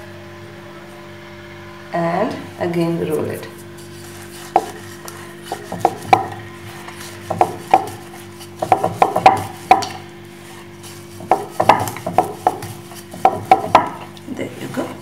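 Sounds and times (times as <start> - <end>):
rolling pin knocking on wooden board: 4.4 - 10.0, 11.1 - 14.1.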